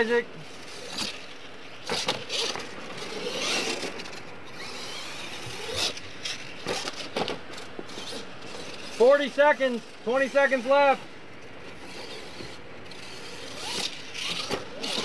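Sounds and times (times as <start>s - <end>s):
rc truck motor on dirt: 0.0s - 11.0s, 11.6s - 15.0s
sharp knocks from landings: 0.9s - 8.6s.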